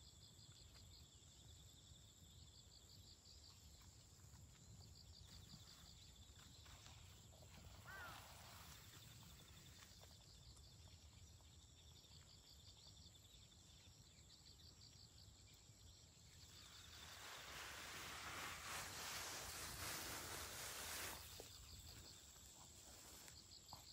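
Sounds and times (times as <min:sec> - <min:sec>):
insects chirping: 0:00.0 - 0:23.9
hissing rushing noise: 0:16.7 - 0:21.5.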